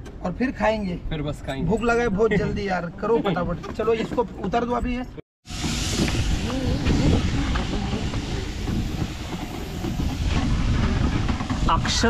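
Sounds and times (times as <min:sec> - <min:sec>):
boat engine rumble: 0:05.5 - 0:12.0
wind noise: 0:05.5 - 0:12.0.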